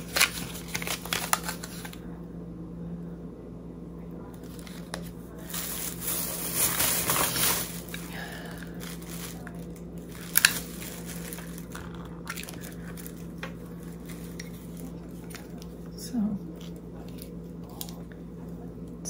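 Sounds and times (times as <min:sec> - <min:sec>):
plastic packaging rustling: 0:00.0 - 0:02.0, 0:04.4 - 0:15.8.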